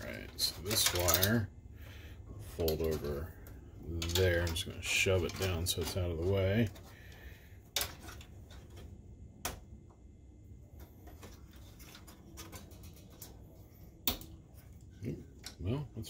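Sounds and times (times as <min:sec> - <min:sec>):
faint handling noise: 0:00.0 - 0:01.5, 0:02.2 - 0:16.0
plastic wire connectors clicking: 0:00.3 - 0:01.4.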